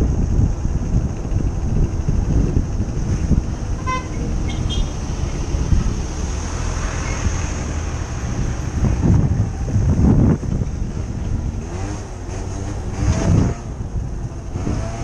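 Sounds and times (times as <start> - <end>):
motorbike engine and road noise: 0.0 - 15.0
wind buffeting microphone: 0.0 - 15.0
horn toot: 3.8 - 5.0.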